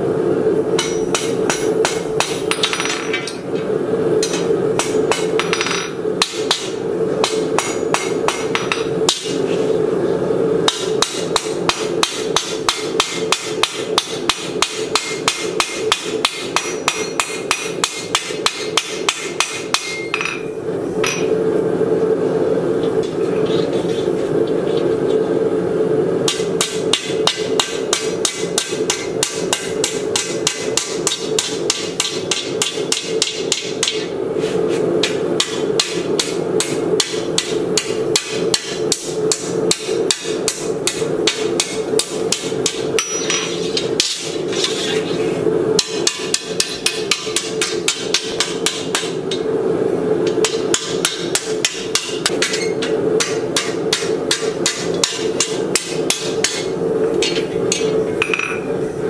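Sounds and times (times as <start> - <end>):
hammer ringing on steel on anvil: 0.8 - 3.1, 10.7 - 21.3, 35.4 - 43.5, 50.4 - 58.7.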